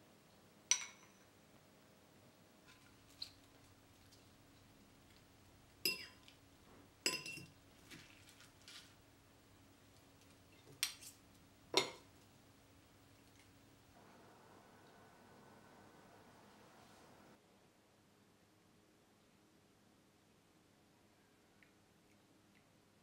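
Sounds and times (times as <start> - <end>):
metal cutlery clinking on ceramic: 7.1 - 8.9, 10.7 - 11.2.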